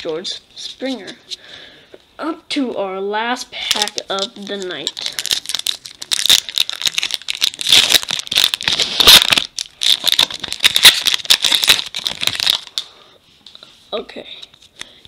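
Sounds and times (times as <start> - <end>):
foil wrapper crinkling: 3.6 - 12.9.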